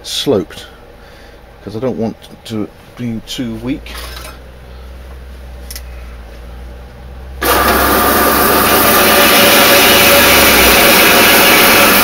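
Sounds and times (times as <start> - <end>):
bandsaw cutting wood: 7.4 - 12.0.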